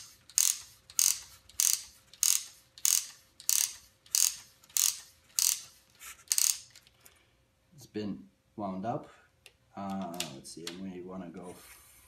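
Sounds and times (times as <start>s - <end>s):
wooden ratchet clicking: 0.0s - 6.9s.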